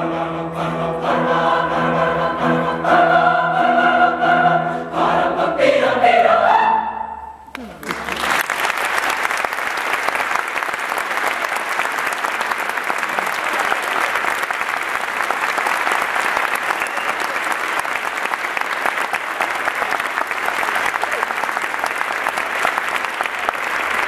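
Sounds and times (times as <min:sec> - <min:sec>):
audience applauding: 0:07.5 - 0:24.0.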